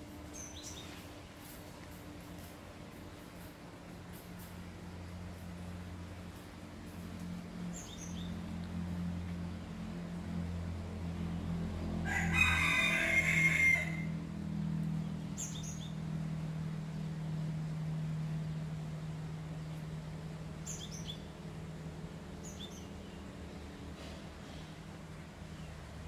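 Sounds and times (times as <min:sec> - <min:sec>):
steady low hum: 0:00.0 - 0:26.0
rooster crowing: 0:11.9 - 0:14.2.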